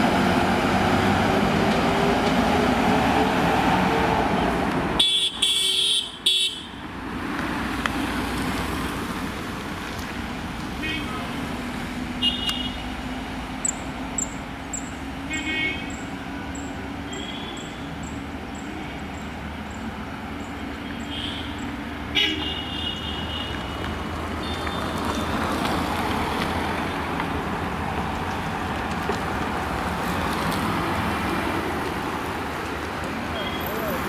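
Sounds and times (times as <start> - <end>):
vehicles passing: 0.0 - 34.0
vehicle horn toots: 5.0 - 6.7, 12.2 - 12.9, 15.3 - 16.0, 17.1 - 17.7, 20.9 - 23.8.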